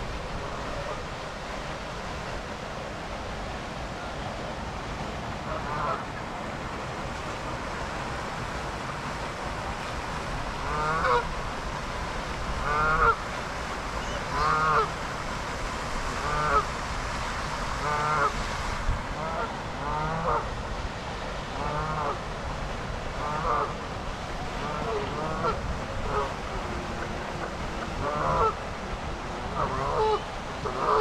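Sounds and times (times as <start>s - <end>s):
geese honking: 10.7s - 11.2s, 12.7s - 13.2s, 14.0s - 14.9s, 24.6s - 26.3s, 28.0s - 28.6s, 29.5s - 31.0s.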